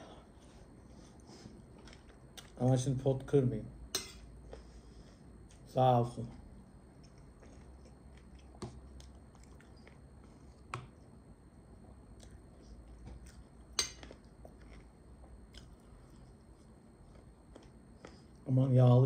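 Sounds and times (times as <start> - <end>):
person chewing: 1.1 - 2.6, 6.9 - 11.1, 11.8 - 18.4.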